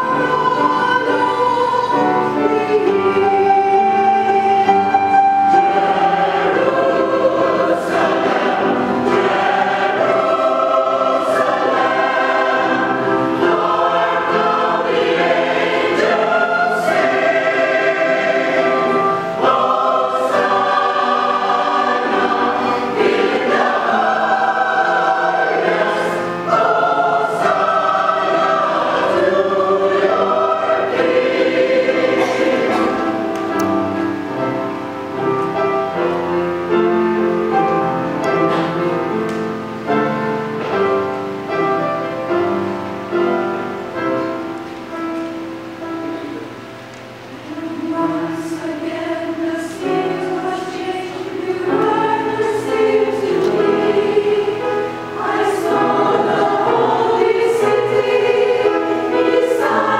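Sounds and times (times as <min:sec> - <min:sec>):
choir singing: 0:00.0 - 0:44.5, 0:46.2 - 0:59.9.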